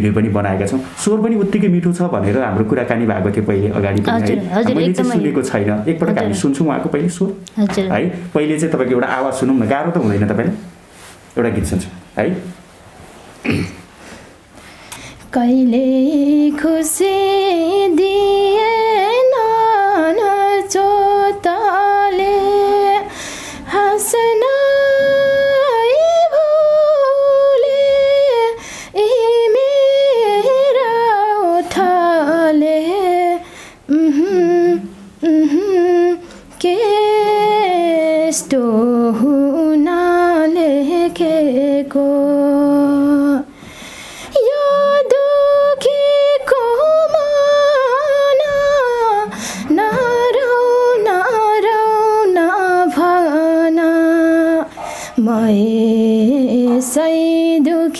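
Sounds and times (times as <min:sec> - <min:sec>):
woman singing unaccompanied: 0:04.0 - 0:06.6, 0:15.2 - 0:43.6, 0:44.3 - 0:57.9.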